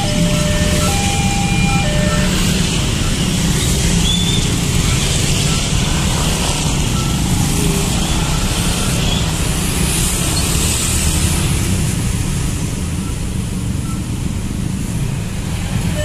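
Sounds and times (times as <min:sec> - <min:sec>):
two-tone electronic signal: 0:00.0 - 0:03.5, 0:06.7 - 0:09.2
motorbike and car traffic passing: 0:00.0 - 0:16.0.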